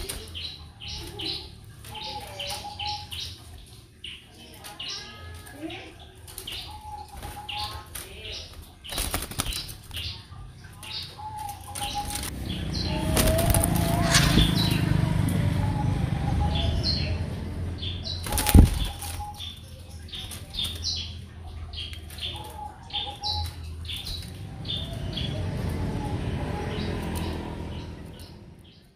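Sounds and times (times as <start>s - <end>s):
small birds chirping: 0.0s - 28.9s
steady low rumble: 11.5s - 20.3s, 23.6s - 28.9s.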